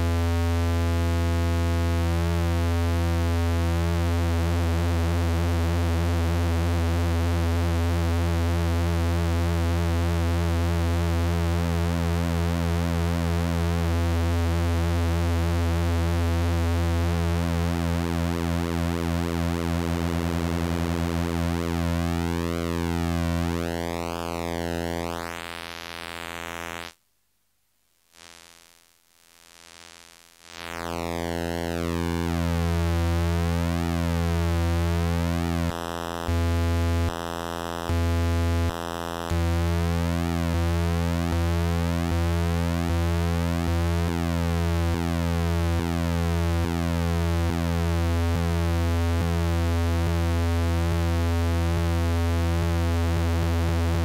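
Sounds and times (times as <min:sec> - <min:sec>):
synthesizer buzzy drone: 0:10.0 - 0:26.9, 0:30.5 - 0:54.0.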